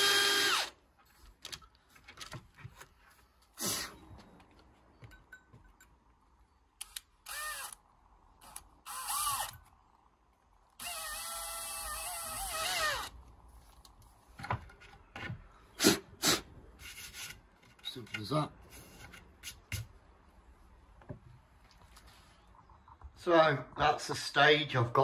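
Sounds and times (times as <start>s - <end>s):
drill boring into wood: 0.0s - 0.8s, 7.2s - 7.8s, 8.4s - 9.6s, 10.8s - 13.1s.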